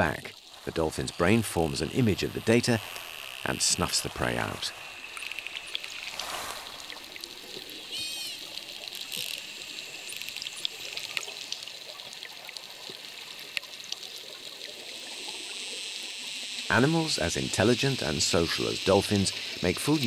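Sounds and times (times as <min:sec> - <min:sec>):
underwater hiss: 0:00.1 - 0:20.0
dolphin whistle: 0:07.9 - 0:08.4.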